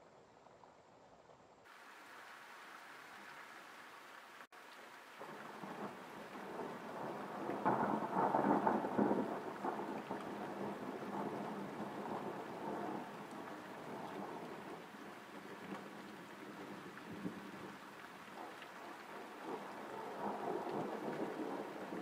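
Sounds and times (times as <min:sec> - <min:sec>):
rain falling: 0:01.6 - 0:22.0
thunder rumbling: 0:05.2 - 0:22.0.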